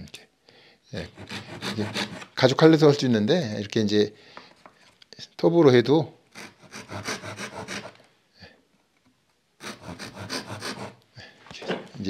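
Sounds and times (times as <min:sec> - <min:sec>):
hand saw cutting wood: 0:01.0 - 0:02.4, 0:06.3 - 0:08.0, 0:09.6 - 0:11.0.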